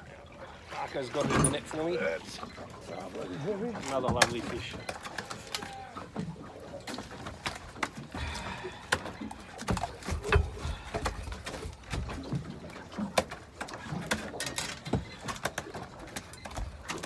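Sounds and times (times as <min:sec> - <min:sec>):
wind and water rumble: 0:00.0 - 0:17.0.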